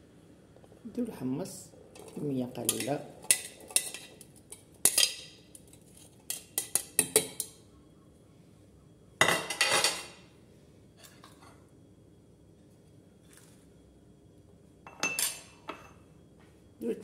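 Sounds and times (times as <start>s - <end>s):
dishes clattering: 2.0s - 5.5s, 9.2s - 10.2s
metal tongs clinking on plate: 4.8s - 5.7s.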